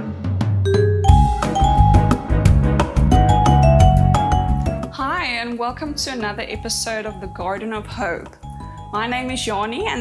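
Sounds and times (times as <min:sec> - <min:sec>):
short pitched melody notes: 0:00.7 - 0:03.7
drum beat: 0:00.7 - 0:05.1
bass line: 0:00.7 - 0:05.2.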